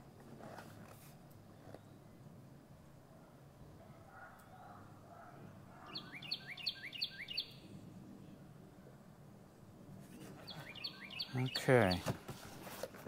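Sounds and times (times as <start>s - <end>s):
faint low background noise: 0.0s - 13.0s
bird chirping: 5.8s - 8.4s, 10.0s - 12.2s.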